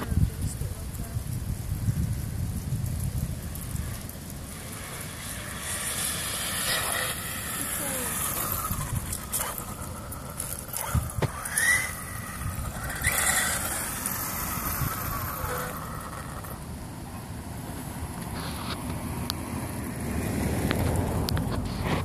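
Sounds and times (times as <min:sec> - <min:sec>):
electric motor whine: 0:04.4 - 0:16.8.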